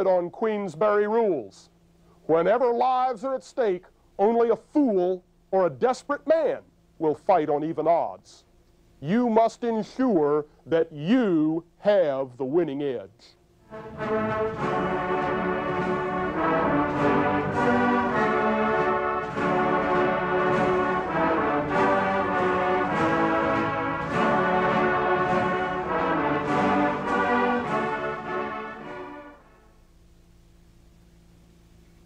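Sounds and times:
faint hiss and hum: 0.0s - 32.0s
brass marching band: 13.6s - 29.9s.

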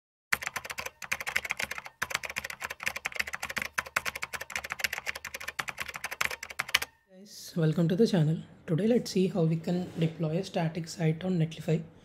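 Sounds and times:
fast keyboard typing: 0.3s - 6.9s.

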